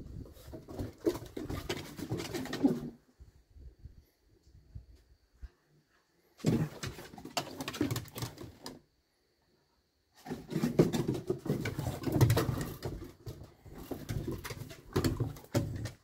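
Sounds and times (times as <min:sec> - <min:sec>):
paws scuffling on wooden boards: 0:10.3 - 0:16.0.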